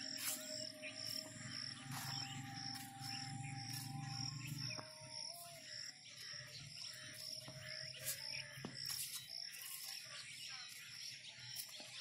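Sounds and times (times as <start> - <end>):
distant call to prayer: 0.0 - 9.0
crickets chirping: 0.0 - 11.8.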